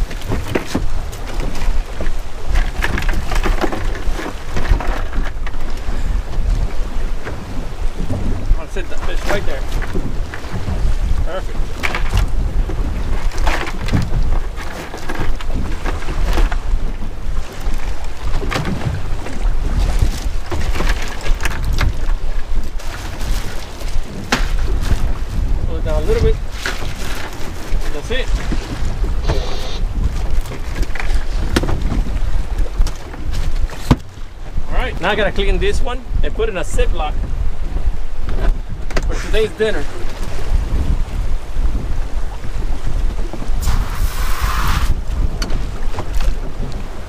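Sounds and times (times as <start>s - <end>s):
wind buffeting microphone: 0.0s - 47.0s.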